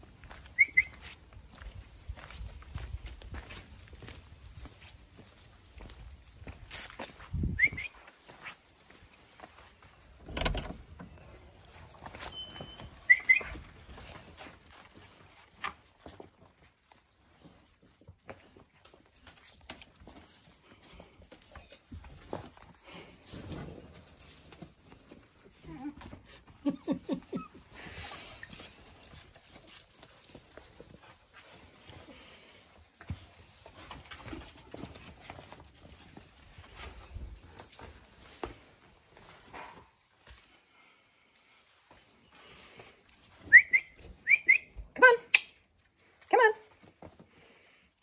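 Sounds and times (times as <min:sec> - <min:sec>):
puppies scuffling on doormat: 0:00.1 - 0:44.3
person whistling: 0:07.5 - 0:08.0, 0:43.4 - 0:44.7
puppies whining yelps: 0:12.4 - 0:14.4, 0:27.3 - 0:29.6, 0:36.8 - 0:37.4.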